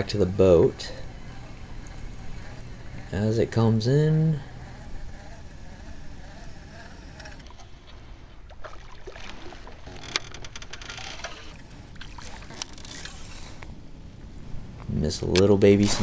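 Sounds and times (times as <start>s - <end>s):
small sharp clicks and ticks: 0.0s - 7.5s
low rumble of water and wind: 4.6s - 16.0s.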